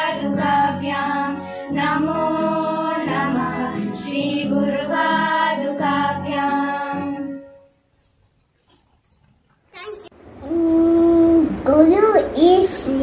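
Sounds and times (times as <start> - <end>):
children singing in unison: 0.0 - 7.3.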